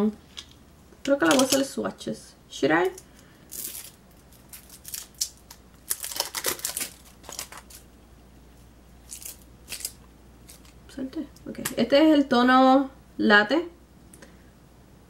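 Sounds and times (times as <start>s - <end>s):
packaging crinkling and tearing: 3.5s - 7.9s, 9.0s - 10.8s.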